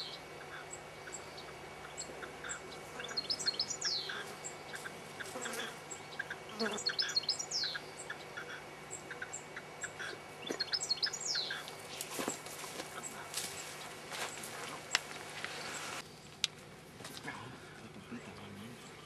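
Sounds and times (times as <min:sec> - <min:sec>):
goldfinch twittering song: 0:00.0 - 0:04.9, 0:05.9 - 0:11.8.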